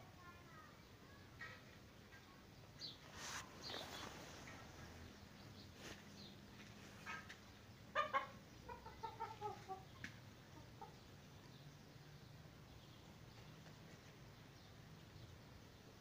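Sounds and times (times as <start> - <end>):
chicken clucking: 7.0 - 11.6.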